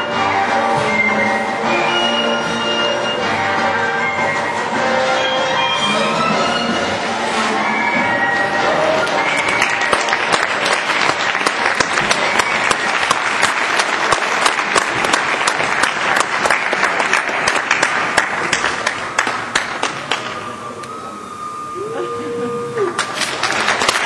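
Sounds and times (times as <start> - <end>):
audience applauding: 8.7 - 20.6, 21.8 - 24.0.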